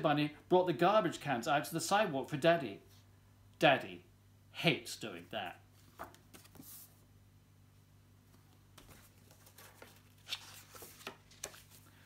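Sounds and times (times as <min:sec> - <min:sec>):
book pages turning: 0:05.7 - 0:07.0, 0:08.3 - 0:12.0.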